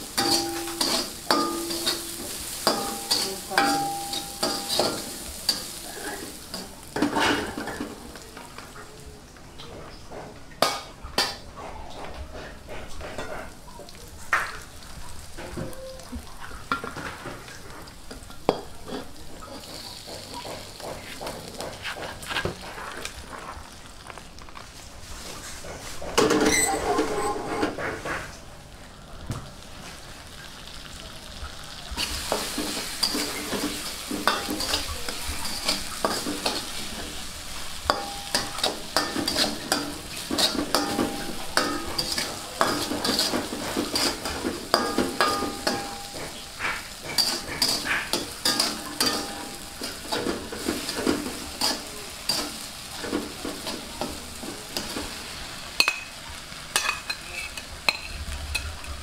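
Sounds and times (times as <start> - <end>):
metal utensil scraping a pan: 0.0 - 7.9, 25.5 - 28.3, 32.0 - 55.2, 55.8 - 59.0
food sizzling in a pan: 0.0 - 59.0.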